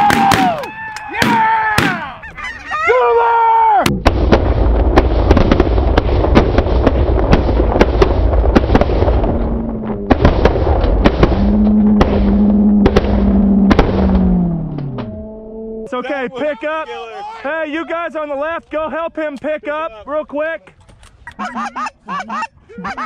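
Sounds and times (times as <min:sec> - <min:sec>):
geese honking: 0:02.0 - 0:03.2, 0:21.3 - 0:23.0.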